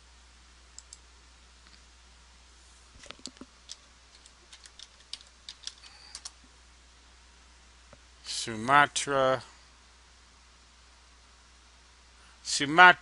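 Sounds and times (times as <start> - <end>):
typing on keyboard: 3.0 - 6.4.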